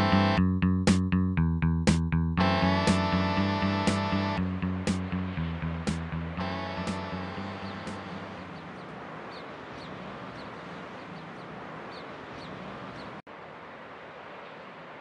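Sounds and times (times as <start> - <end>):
steady outdoor rush: 2.4 - 15.0
small birds chirping: 6.7 - 13.2.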